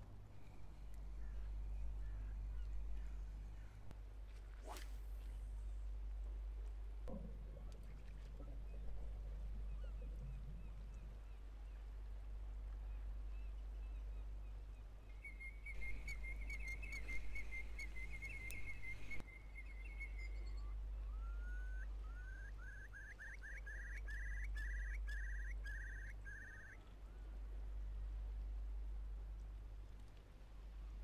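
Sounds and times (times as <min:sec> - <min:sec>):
faint low hum: 0:00.0 - 0:31.0
bird calling: 0:15.1 - 0:26.9.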